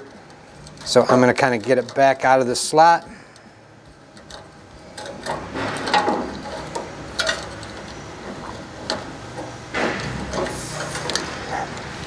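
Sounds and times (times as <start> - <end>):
wires rustling and scraping metal: 0.0 - 12.0.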